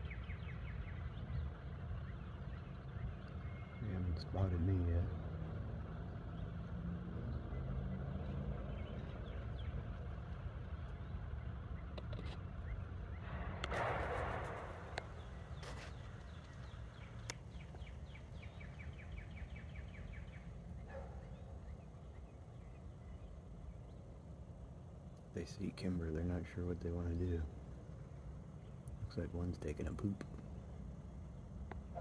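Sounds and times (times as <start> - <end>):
low outdoor rumble: 0.0 - 32.0
rustling: 13.7 - 17.8
bird trilling: 14.6 - 32.0.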